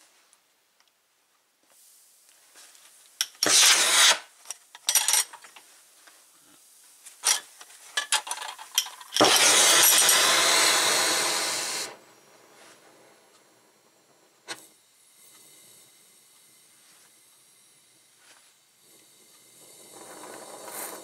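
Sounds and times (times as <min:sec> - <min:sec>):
gas torch puffs: 0:03.2 - 0:04.6, 0:08.7 - 0:21.0
torch flame hissing: 0:03.3 - 0:04.5, 0:09.1 - 0:21.0.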